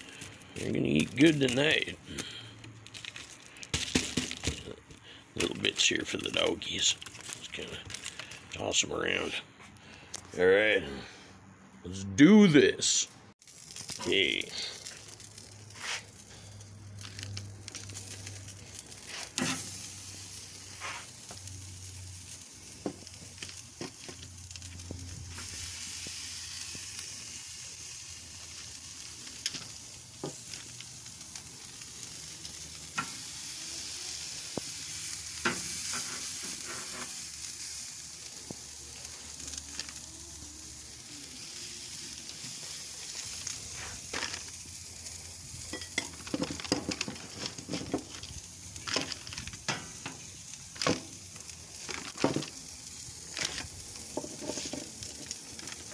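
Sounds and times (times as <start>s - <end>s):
meat sizzling on a grill: 0.0s - 9.1s, 13.4s - 55.9s.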